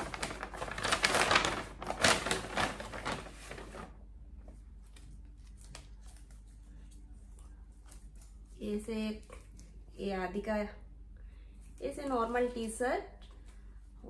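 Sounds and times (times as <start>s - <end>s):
paper bag rustling: 0.0s - 4.0s.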